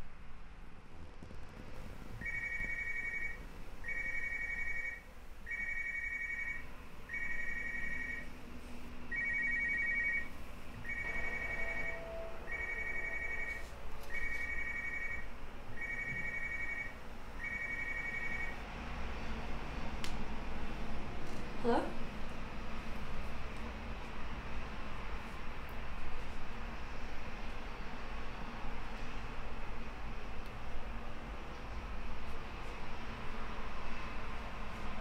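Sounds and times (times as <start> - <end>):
two-tone electronic ringtone beeps: 2.2 - 8.3, 9.1 - 10.3, 10.9 - 18.6.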